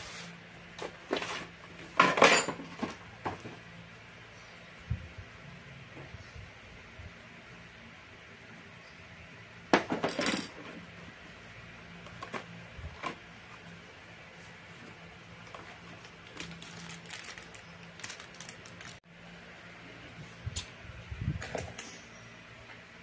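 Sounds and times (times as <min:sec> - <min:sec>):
plastic packet crinkling: 0:15.5 - 0:19.0.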